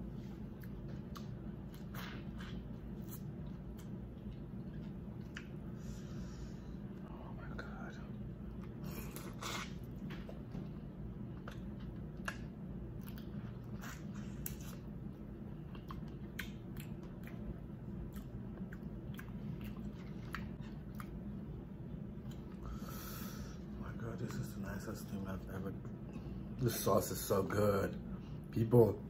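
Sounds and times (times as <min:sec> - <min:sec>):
steady low hum: 0:00.0 - 0:29.0
person chewing with wet mouth clicks: 0:00.6 - 0:05.6, 0:11.4 - 0:14.8, 0:15.6 - 0:21.2.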